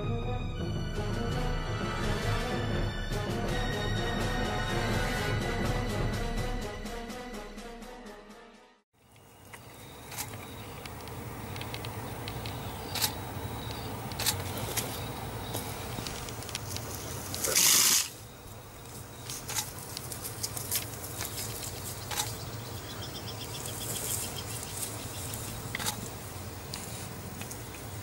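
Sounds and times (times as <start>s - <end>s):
insect chirping: 9.0s - 28.0s.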